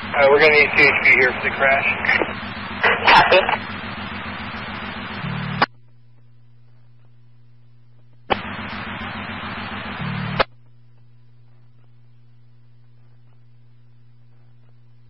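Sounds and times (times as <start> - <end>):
radio static burst: 0.0 - 6.0, 8.2 - 10.7
steady low hum: 0.0 - 15.0
radio squelch click: 0.8 - 3.6.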